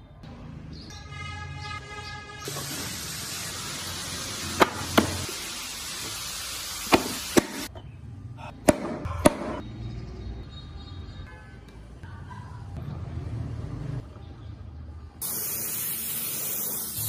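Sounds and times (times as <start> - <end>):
steady hiss: 15.2 - 17.0.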